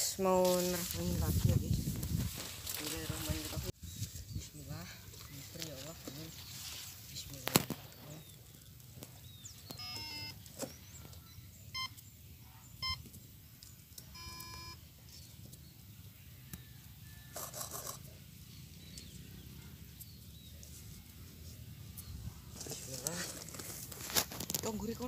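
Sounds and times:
motor controller startup beeps: 9.8s - 10.4s, 11.7s - 12.0s, 12.8s - 13.0s, 14.1s - 14.8s.

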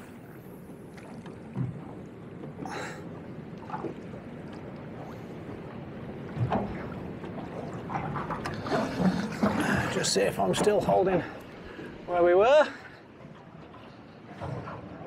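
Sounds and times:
water slapping against boat hull: 0.8s - 11.1s
short splashes or knocks: 6.3s - 10.9s.

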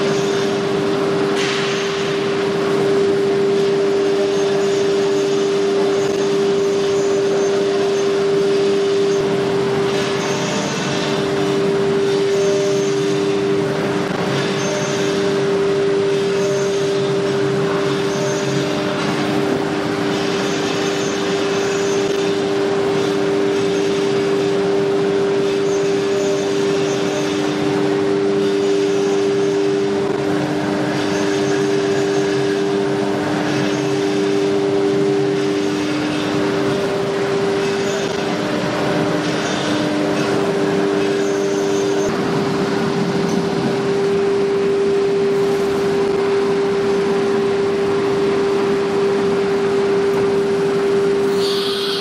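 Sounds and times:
router spindle whine: 50.2s - 52.0s.

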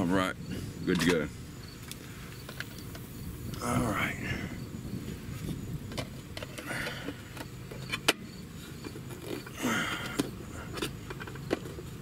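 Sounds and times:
steady low rumble: 0.0s - 7.7s.

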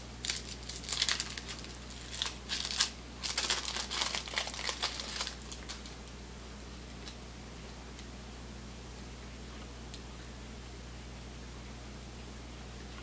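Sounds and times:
paper wrapper crinkling and tearing: 0.2s - 6.1s.

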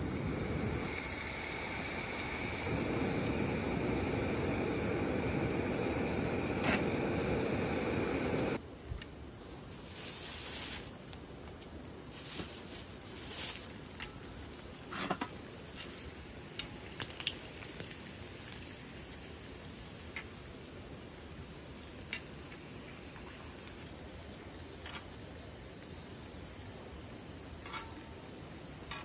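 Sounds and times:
loud steady rush: 0.0s - 8.6s
fish sizzling in oil: 14.3s - 25.3s.

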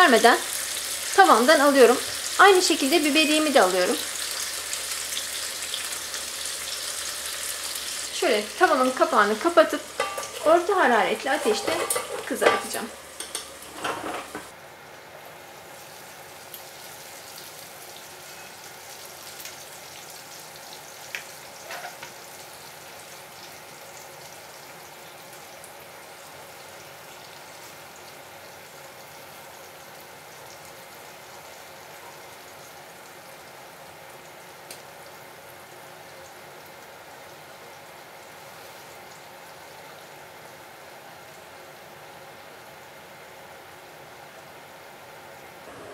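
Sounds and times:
fish sizzling in oil: 0.0s - 14.6s, 15.2s - 43.0s
metal tongs clicking on pan: 9.8s - 10.5s, 11.4s - 13.6s.

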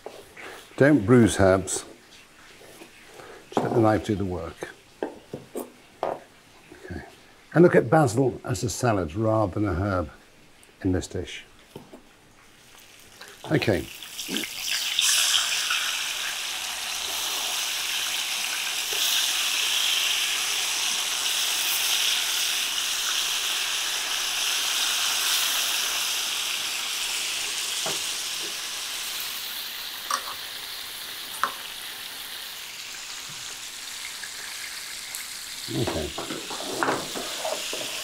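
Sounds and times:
fish sizzling in a pan: 12.4s - 38.0s.

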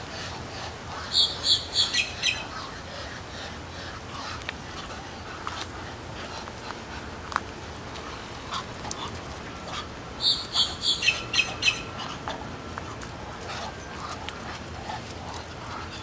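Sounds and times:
ducks hissing softly: 0.0s - 16.0s
grackle harsh high calls: 0.9s - 4.2s, 10.2s - 12.3s.

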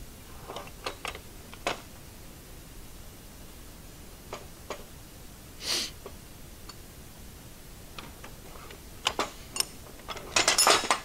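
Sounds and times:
short breathy hiss: 5.6s - 6.0s
metal parts clicking and tapping: 9.0s - 11.0s.

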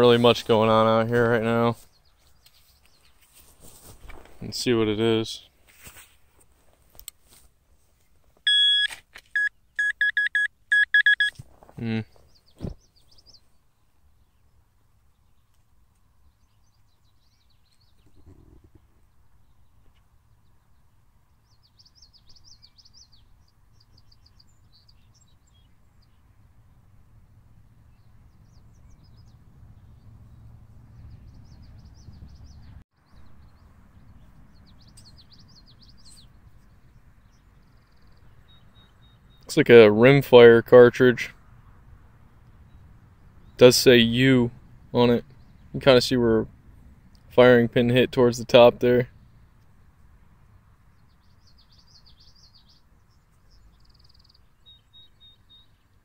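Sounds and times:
songbirds chirping: 0.0s - 8.7s, 9.4s - 56.0s
low steady rumble: 25.8s - 39.3s.

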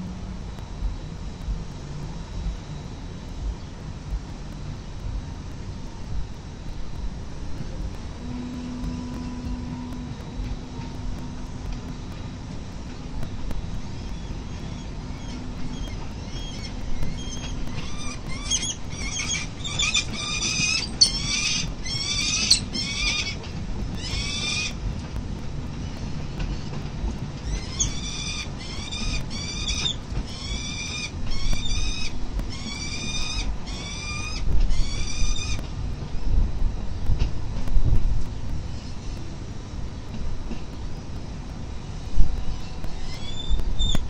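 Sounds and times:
falcons calling harshly: 14.0s - 23.4s, 24.0s - 24.8s, 27.4s - 35.6s.

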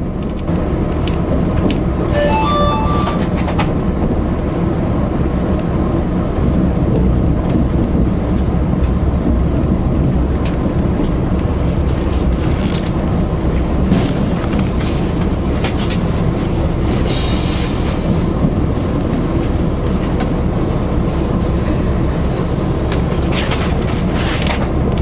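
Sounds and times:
train wheels rumbling: 6.0s - 24.8s.

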